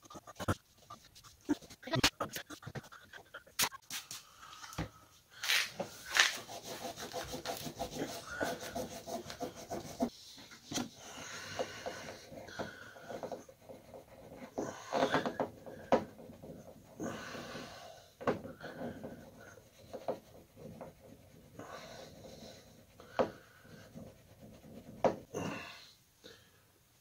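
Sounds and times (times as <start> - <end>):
fingertips rubbing adhesive off metal: 5.5 - 10.1, 11.5 - 17.0, 18.5 - 25.3
heavy breathing: 10.9 - 13.3, 17.0 - 19.5.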